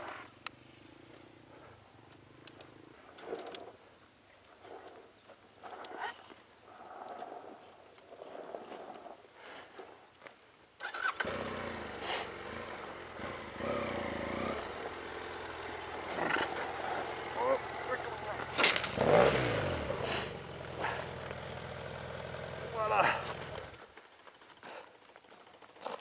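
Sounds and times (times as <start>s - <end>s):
motorcycle engine starting and idling: 10.8s - 24.6s.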